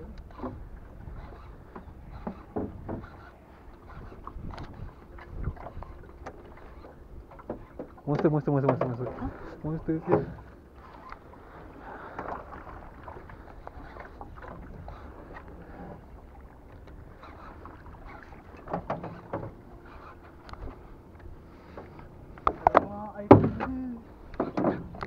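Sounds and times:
water sloshing and splashing: 0:00.0 - 0:25.0
scattered knocks: 0:01.7 - 0:03.2, 0:07.4 - 0:09.2, 0:22.5 - 0:23.7.

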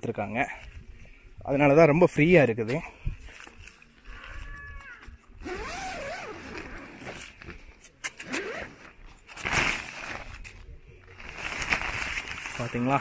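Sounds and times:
tent zipper being unzipped: 0:05.4 - 0:10.4
nylon fabric rustling: 0:05.4 - 0:13.0.

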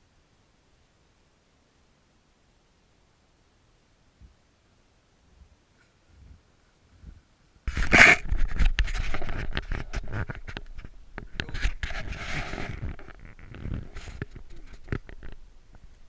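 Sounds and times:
camera handling noise: 0:07.7 - 0:15.4.

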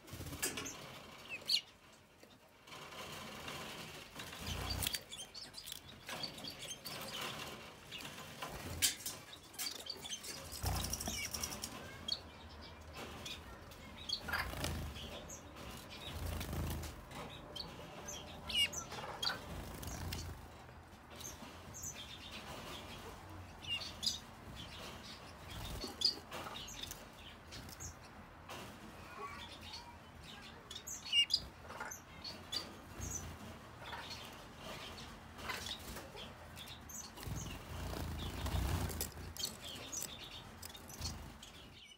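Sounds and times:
rustles and knocks in cage: 0:00.0 - 0:05.1, 0:05.9 - 0:12.1, 0:24.2 - 0:29.2
wing flutters: 0:10.2 - 0:12.0, 0:14.2 - 0:17.2, 0:19.2 - 0:20.6, 0:37.0 - 0:41.7
finches chirping: 0:29.2 - 0:41.9.

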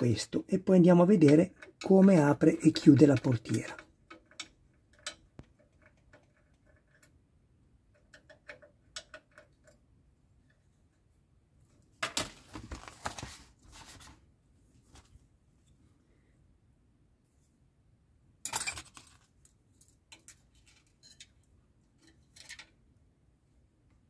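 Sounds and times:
rustling scraping handling noise: 0:12.3 - 0:15.9.

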